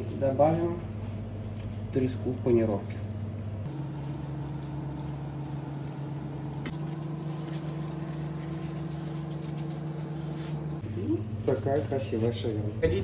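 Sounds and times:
kitchen equipment humming: 0:00.0 - 0:13.0.

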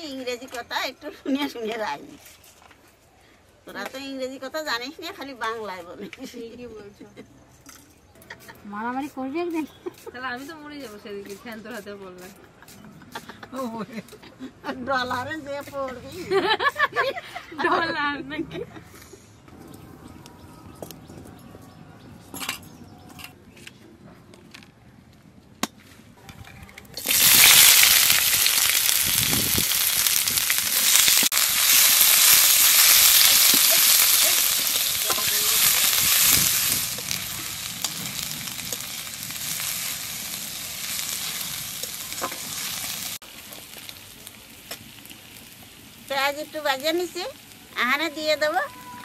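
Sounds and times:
onions sizzling in hot oil: 0:27.0 - 0:49.0.

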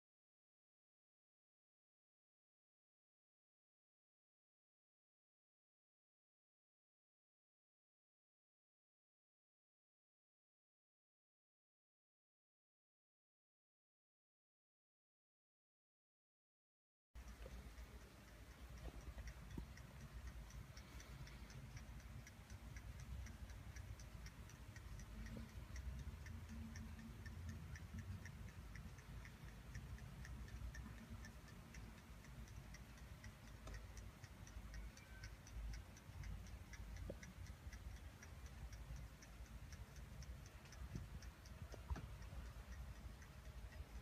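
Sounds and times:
clock ticking: 0:17.2 - 0:44.0.

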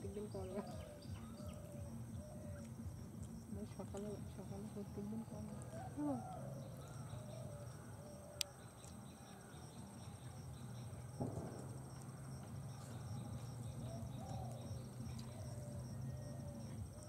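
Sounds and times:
bird calls: 0:00.0 - 0:02.9, 0:12.6 - 0:17.0
insects droning: 0:00.0 - 0:17.0.

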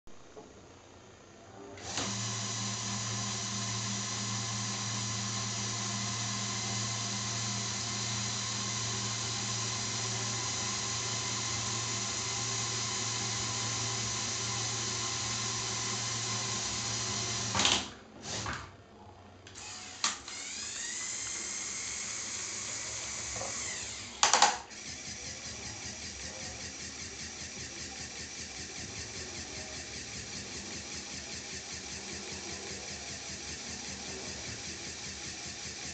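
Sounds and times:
motor whine: 0:01.8 - 0:18.5, 0:19.5 - 0:35.9
toy electric motors whirring: 0:19.5 - 0:35.9.

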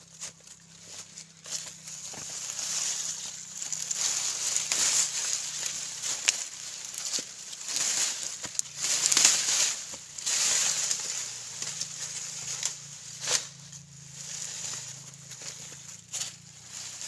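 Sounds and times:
vines and stalks rustling: 0:00.0 - 0:17.0
stalks cracking: 0:01.4 - 0:13.5.

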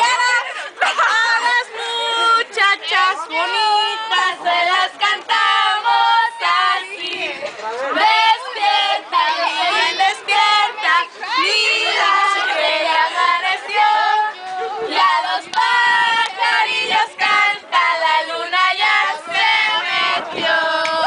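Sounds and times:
girls talking excitedly: 0:06.0 - 0:15.2.

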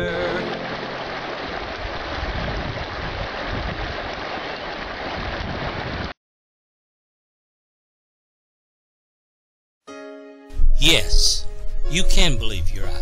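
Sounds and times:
running water rushing: 0:00.2 - 0:06.1.

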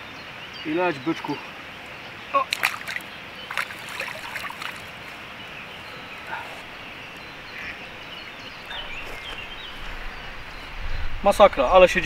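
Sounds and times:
water splashing: 0:02.3 - 0:08.1.

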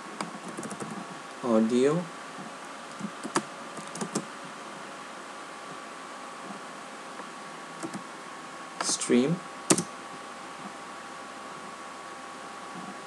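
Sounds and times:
steady background hiss: 0:00.0 - 0:13.0
keyboard keystrokes: 0:02.9 - 0:04.2, 0:07.8 - 0:08.0.

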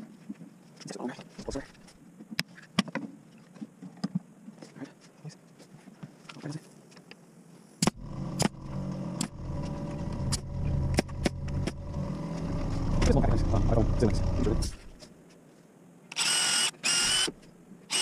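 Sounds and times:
pneumatic nailer snaps: 0:16.1 - 0:18.0.

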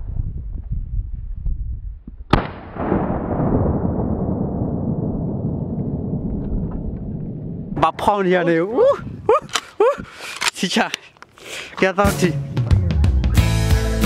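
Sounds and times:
gunshot: 0:02.3 - 0:06.8
rumbling echo roll: 0:02.4 - 0:08.3.

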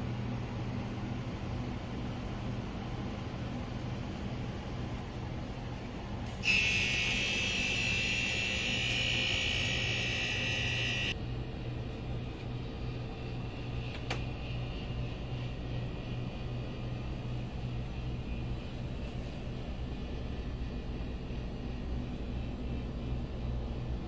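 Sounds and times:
steady low hum: 0:00.0 - 0:24.0
electronic buzzer tone: 0:06.4 - 0:11.2
sharp click: 0:13.9 - 0:14.3.

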